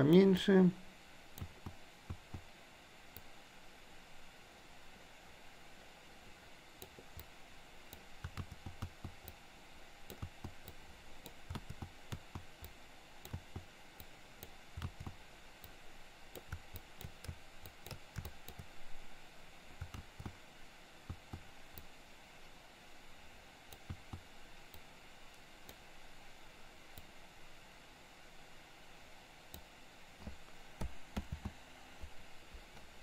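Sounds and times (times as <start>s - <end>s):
faint steady hiss: 0.0s - 33.0s
computer mouse clicks: 1.3s - 2.5s, 3.1s - 3.3s, 6.8s - 9.4s, 10.0s - 18.8s, 19.8s - 20.4s, 21.0s - 22.0s, 23.7s - 25.8s, 29.5s - 33.0s
keyboard tapping: 1.4s - 2.5s, 8.0s - 9.4s, 10.1s - 13.7s, 14.4s - 15.2s, 16.4s - 18.7s, 19.8s - 20.4s, 21.0s - 21.5s, 23.8s - 24.3s, 30.2s - 32.9s.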